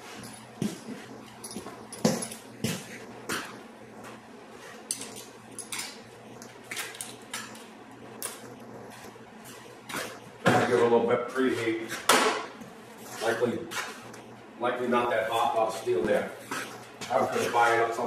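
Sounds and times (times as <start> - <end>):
faint steady hum: 0.0 - 18.0
light metal clinks and knocks: 1.4 - 2.5.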